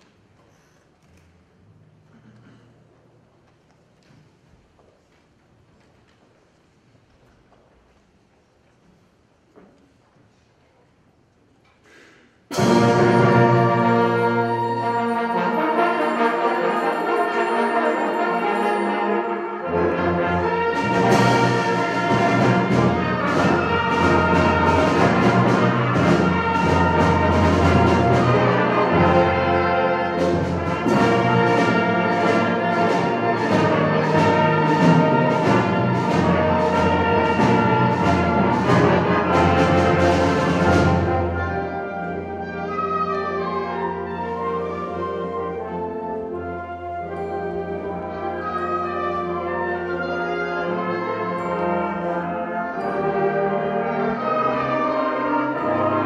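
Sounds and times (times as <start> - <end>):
sharp percussion strokes: 12.5 - 44.4
symphonic band playing: 12.5 - 56.0.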